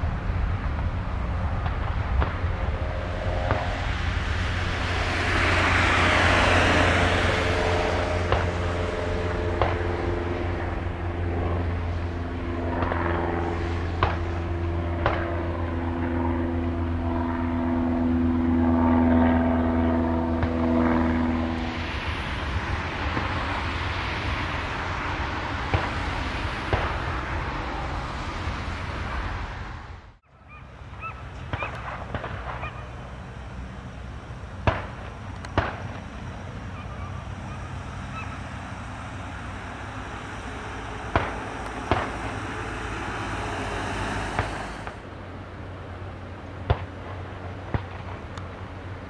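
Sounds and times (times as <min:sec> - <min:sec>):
distant jet engine noise: 0:00.0 - 0:49.0
bird calls: 0:30.2 - 0:31.8, 0:36.6 - 0:38.6.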